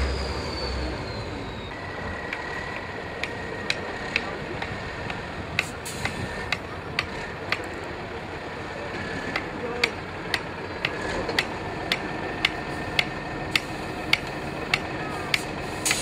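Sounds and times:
truck engine rumble: 0:00.0 - 0:16.0
sharp regular clicking: 0:09.3 - 0:16.0.

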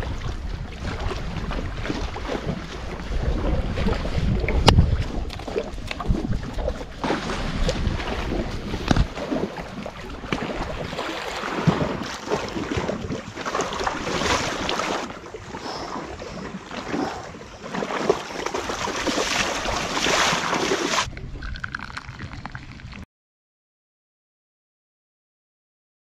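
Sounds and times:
wind buffeting microphone: 0:00.0 - 0:20.2
person wading through water: 0:00.0 - 0:23.0
water lapping at stony shore: 0:00.0 - 0:23.0.

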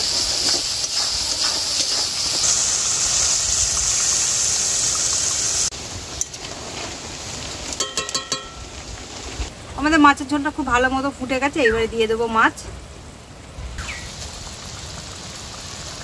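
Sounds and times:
water hissing in hot wok: 0:00.0 - 0:10.0, 0:13.8 - 0:16.0.

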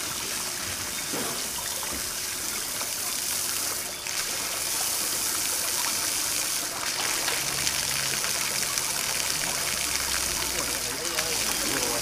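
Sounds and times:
flowing water rushing: 0:00.0 - 0:12.0.

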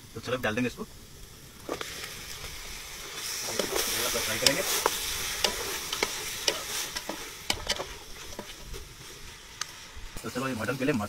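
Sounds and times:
meat sizzling in hot oil: 0:00.0 - 0:11.0
spatula clacking and scraping pot: 0:03.4 - 0:08.8.

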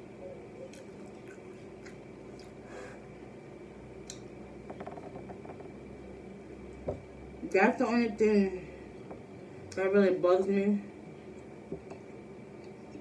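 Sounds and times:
person chewing food: 0:00.6 - 0:03.0.

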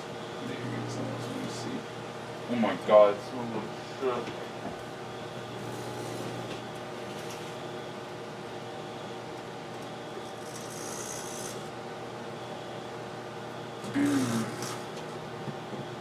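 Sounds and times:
microwave oven humming: 0:00.0 - 0:16.0.

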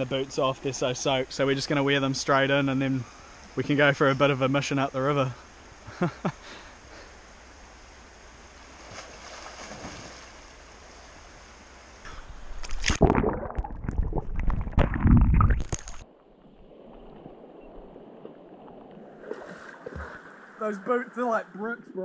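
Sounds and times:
river water flowing: 0:01.8 - 0:13.4, 0:15.4 - 0:21.6
water sloshing and splashing: 0:08.7 - 0:10.6, 0:12.6 - 0:20.6.

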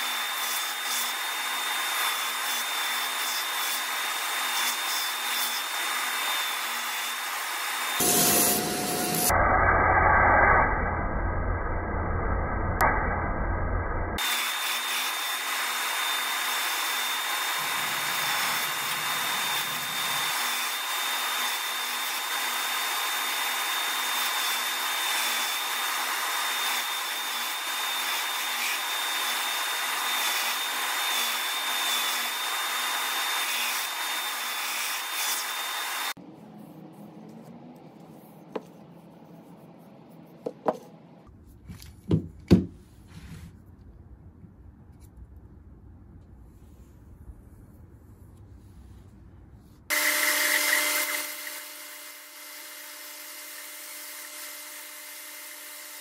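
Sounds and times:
belt sander whining: 0:14.2 - 0:36.2
knocks on workbench: 0:42.1 - 0:42.7.

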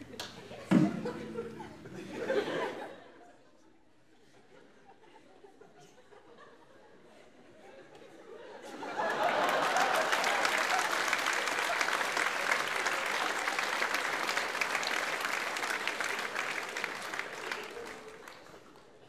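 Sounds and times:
audience applauding: 0:08.8 - 0:19.0.

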